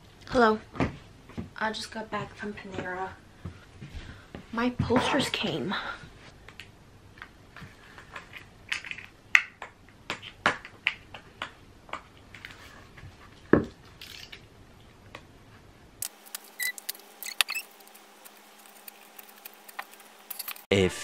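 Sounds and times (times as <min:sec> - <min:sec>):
packaging rustling: 0:16.1 - 0:20.7.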